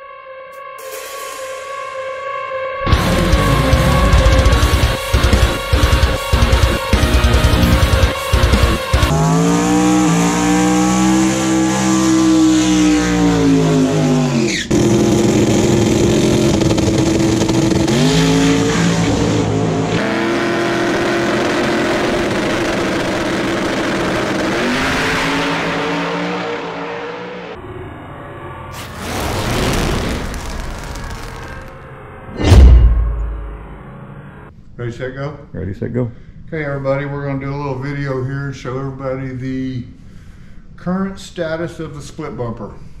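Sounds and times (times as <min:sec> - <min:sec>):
race car engine at high revs: 0:02.9 - 0:27.6.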